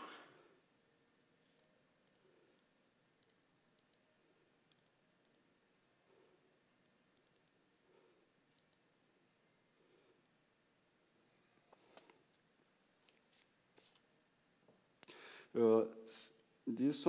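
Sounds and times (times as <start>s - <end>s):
computer mouse clicks: 1.5s - 2.3s, 3.2s - 4.0s, 4.7s - 5.4s, 7.2s - 7.6s, 8.5s - 8.8s.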